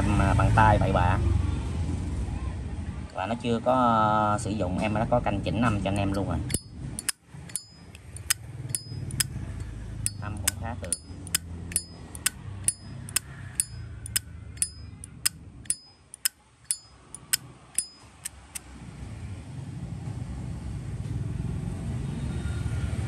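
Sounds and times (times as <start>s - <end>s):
traffic rumble: 0.0s - 23.0s
lighter lid metallic clicks: 6.1s - 9.3s, 10.1s - 14.8s.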